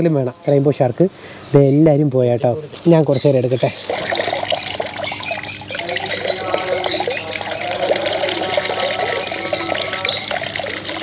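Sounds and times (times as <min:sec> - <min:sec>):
water splashing and trickling into pond: 0:02.6 - 0:11.0.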